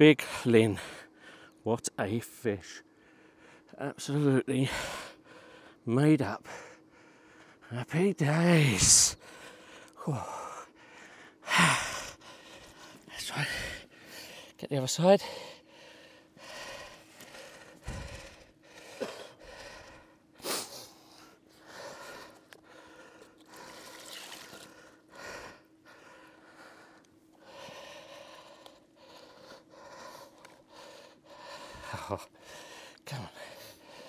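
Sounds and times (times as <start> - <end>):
man breathing hard and gasping: 6.4 - 7.7, 8.7 - 14.6, 15.2 - 34.0.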